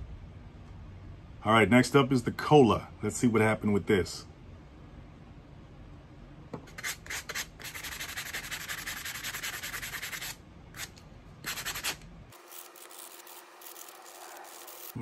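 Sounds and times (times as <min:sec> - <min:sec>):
sanding block scrubbing steel: 0:06.8 - 0:10.4, 0:11.5 - 0:15.0.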